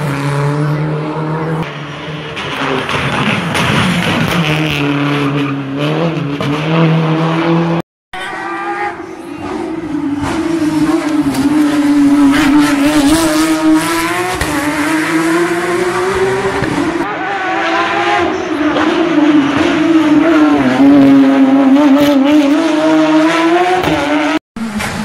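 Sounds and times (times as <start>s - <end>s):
rally car engines revving: 0.0s - 25.0s.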